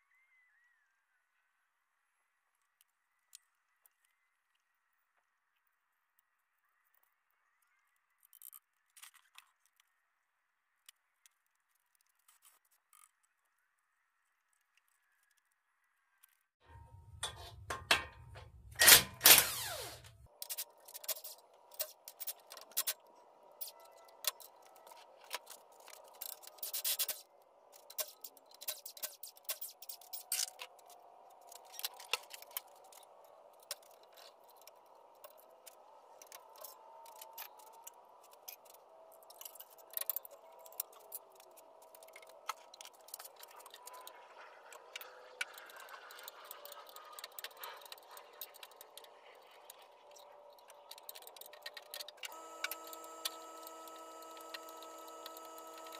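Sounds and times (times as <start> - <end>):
cordless power tool whirring: 18.3 - 20.3, 52.2 - 55.9.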